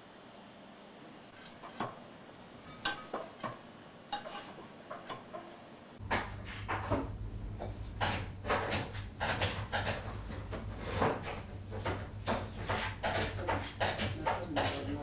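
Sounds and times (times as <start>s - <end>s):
low steady hum: 5.9s - 15.0s.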